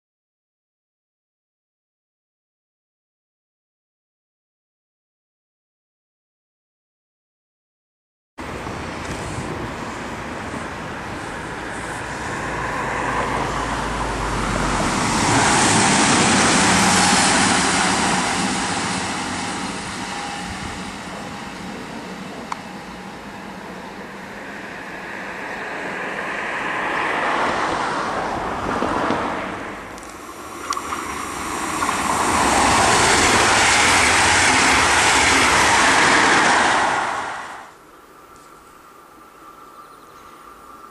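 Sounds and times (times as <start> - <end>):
train rushing by close: 8.4 - 37.8
electric train passing: 8.4 - 38.2.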